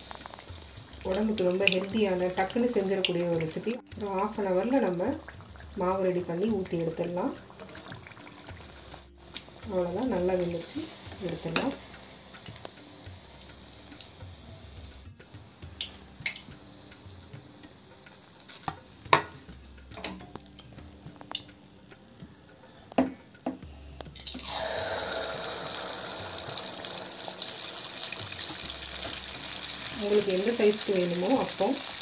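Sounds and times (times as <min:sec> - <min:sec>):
oil sizzling: 0:00.0 - 0:32.0.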